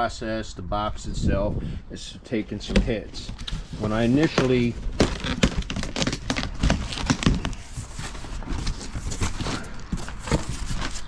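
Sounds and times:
cardboard box being opened: 2.7 - 11.0.

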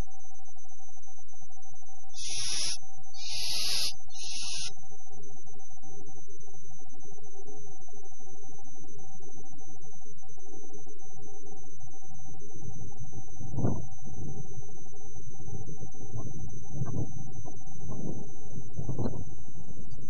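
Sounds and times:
electrical hum: 2.1 - 5.0.

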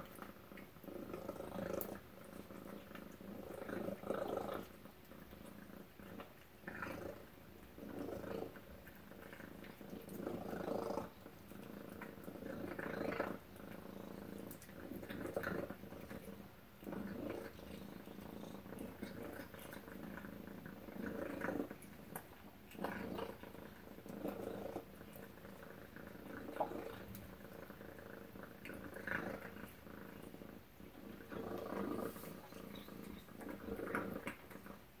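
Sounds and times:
cat purring: 0.0 - 35.0.

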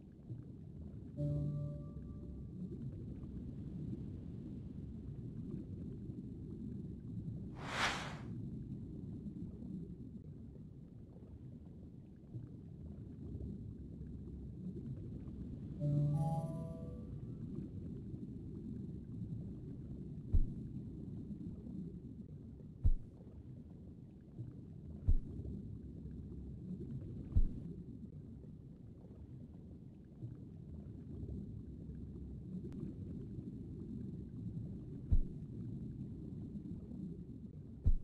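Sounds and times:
soft low thumps: 20.3 - 20.8, 22.8 - 23.2, 25.1 - 25.6, 27.2 - 27.7, 35.0 - 35.5
low underwater rumble: 24.2 - 38.0.

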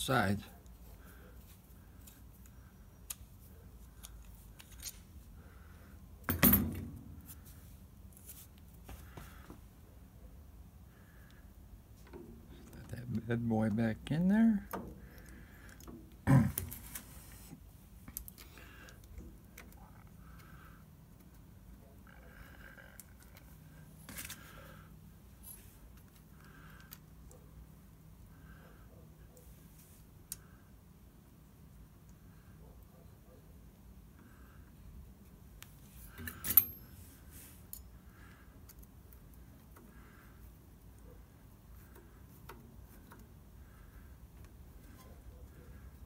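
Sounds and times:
metal parts clicking and clinking: 6.2 - 7.3, 36.0 - 38.0.

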